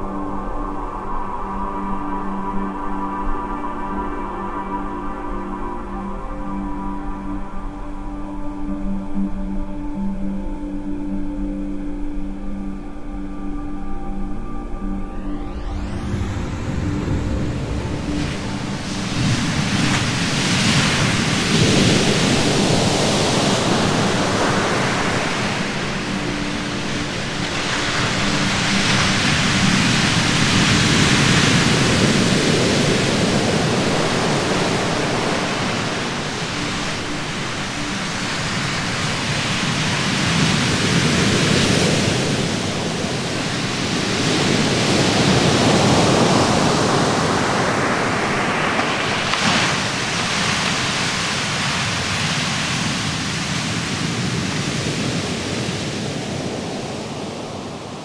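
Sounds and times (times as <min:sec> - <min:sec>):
surf breaking on beach: 0:16.1 - 0:58.0.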